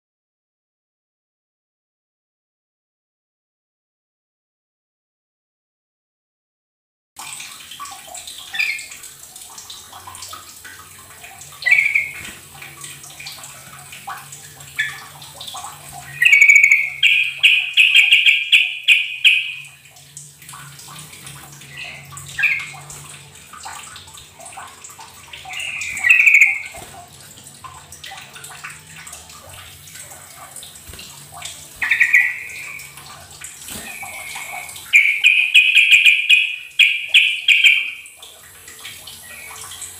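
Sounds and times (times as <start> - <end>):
bird calling: 11.6 - 12.2, 16.0 - 19.8, 25.4 - 26.8, 31.8 - 33.0, 33.8 - 38.1.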